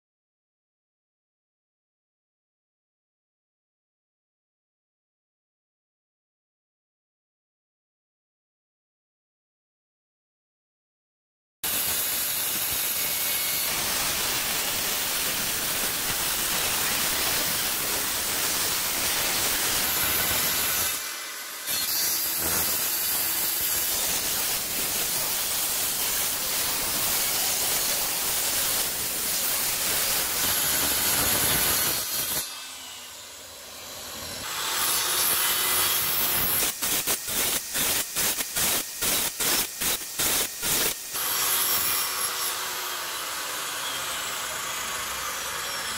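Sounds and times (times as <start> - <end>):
circular saw cutting wood: 11.6 - 45.9.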